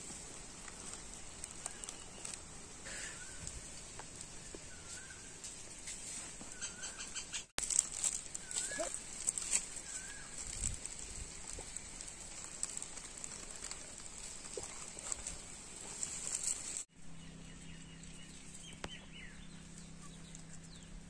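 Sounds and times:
steady high-pitched hiss: 0:00.0 - 0:06.4
bird chirps: 0:06.4 - 0:07.5.

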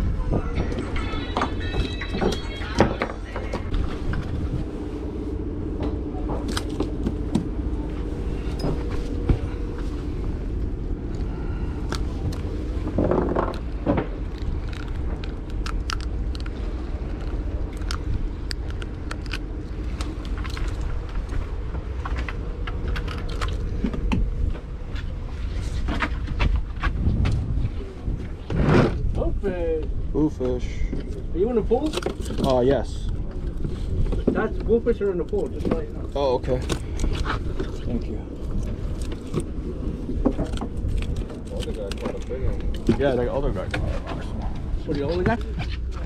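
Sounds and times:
boat machinery humming: 0:00.0 - 0:46.0
clicks and knocks of fish handling: 0:40.2 - 0:44.1.

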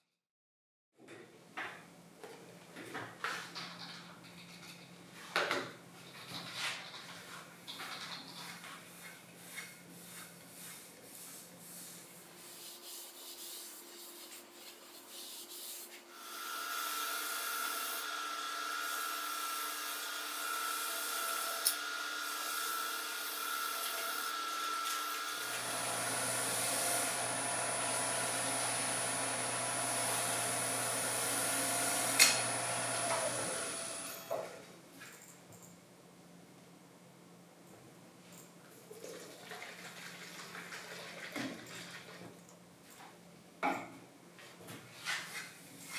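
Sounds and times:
sandpaper on spinning wood: 0:09.0 - 0:16.0, 0:16.7 - 0:18.0
lathe motor whine: 0:16.2 - 0:34.3.

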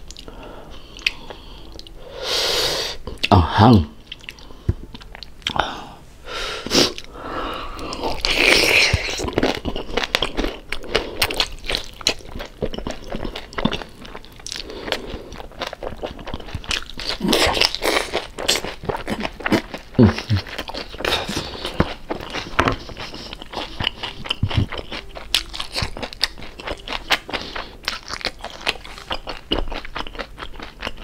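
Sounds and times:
crunching crispy pork: 0:08.1 - 0:31.0.

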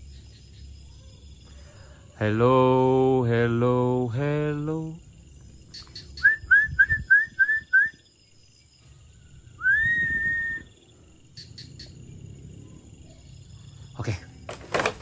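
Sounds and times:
person whistling: 0:06.2 - 0:08.0, 0:09.6 - 0:10.7.

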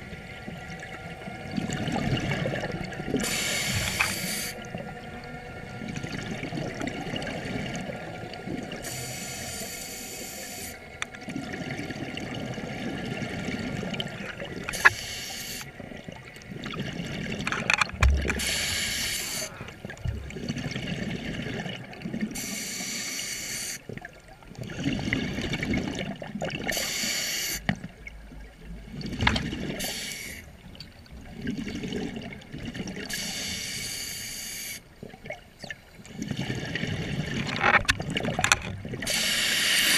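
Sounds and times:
exhaled bubbles rushing underwater: 0:00.0 - 0:22.5, 0:23.8 - 0:26.8, 0:27.7 - 0:33.5, 0:34.9 - 0:39.7
regulator inhalation hiss: 0:03.2 - 0:04.6, 0:08.8 - 0:10.8, 0:14.7 - 0:15.7, 0:18.4 - 0:19.7, 0:22.4 - 0:23.8, 0:26.7 - 0:27.7, 0:29.8 - 0:30.5, 0:33.1 - 0:34.8, 0:39.1 - 0:39.9.

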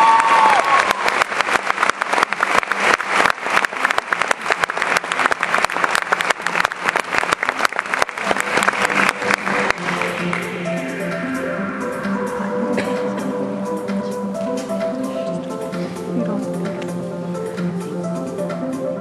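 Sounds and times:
audience applause: 0:00.0 - 0:11.0
music playing: 0:05.9 - 0:19.0.

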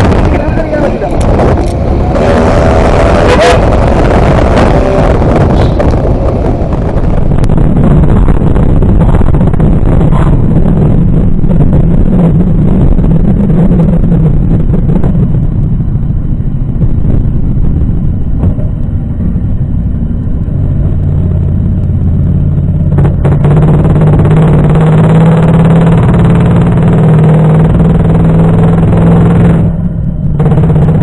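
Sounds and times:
lower engine note: 0:00.0 - 0:31.0
motorcycle engine drone: 0:00.0 - 0:31.0.

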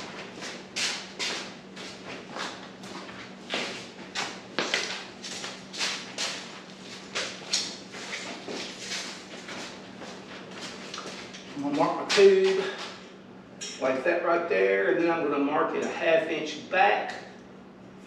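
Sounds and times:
footsteps on shop floor: 0:00.0 - 0:13.0
steady low hum: 0:00.0 - 0:18.0.

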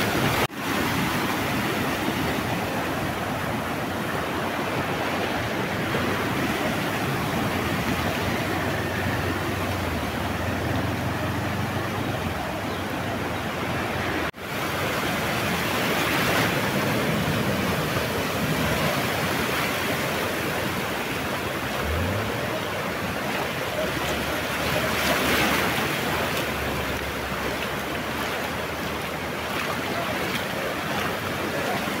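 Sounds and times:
floodwater rushing: 0:00.0 - 0:32.0
low engine hum: 0:20.9 - 0:29.4.

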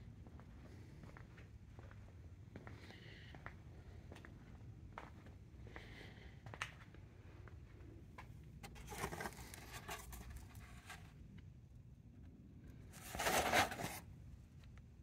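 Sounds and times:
cardboard scraping on plastic: 0:08.6 - 0:11.1, 0:13.0 - 0:14.0.

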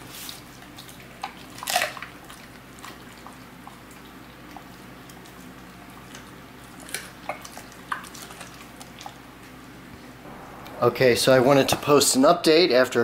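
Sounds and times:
dog chewing and licking meat: 0:00.0 - 0:09.6.

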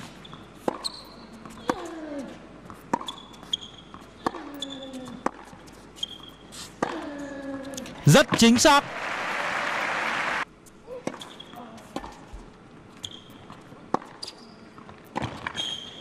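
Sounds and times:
sneakers squeaking on court: 0:00.0 - 0:01.9, 0:02.7 - 0:06.6, 0:13.0 - 0:16.0.

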